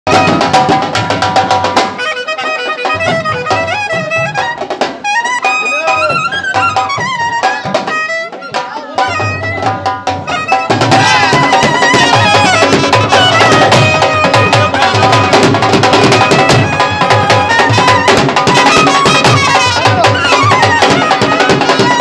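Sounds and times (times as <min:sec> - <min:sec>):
barrel drums beaten with sticks: 0:00.1 - 0:02.0, 0:09.0 - 0:22.0
melody with sliding notes: 0:00.1 - 0:22.0.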